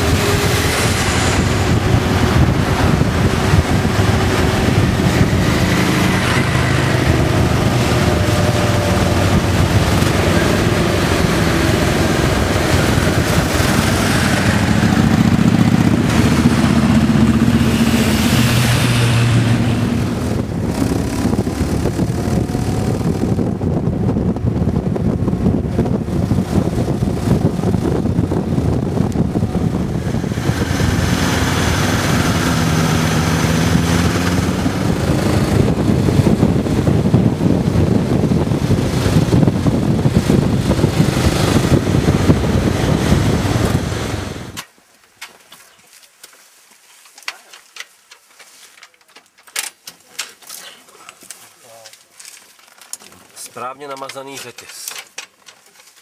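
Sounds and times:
motorcycle engine running: 0.0 - 44.6
wind rush on microphone: 0.0 - 44.6.

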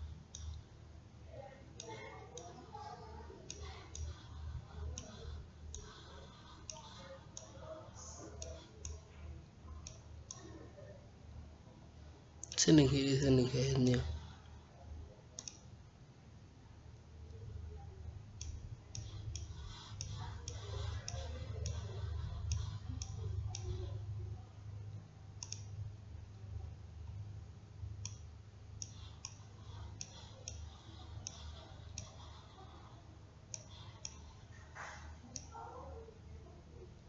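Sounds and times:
computer mouse clicking: 0.0 - 0.6, 1.8 - 10.6, 15.4 - 15.8, 18.3 - 24.1, 25.3 - 25.8, 28.0 - 35.6
steady low hum: 0.0 - 37.0.

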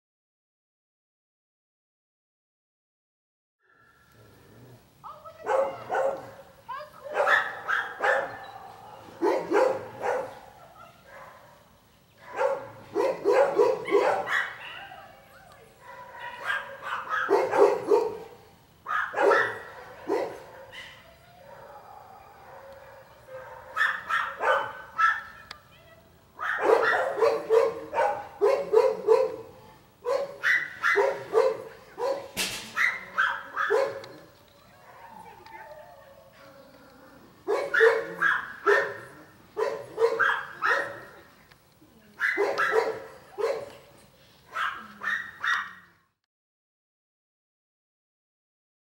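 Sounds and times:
dog barking and yipping: 5.4 - 11.6, 12.2 - 15.0, 15.8 - 25.4, 26.4 - 35.8, 37.5 - 41.2, 42.2 - 43.8, 44.5 - 45.9.

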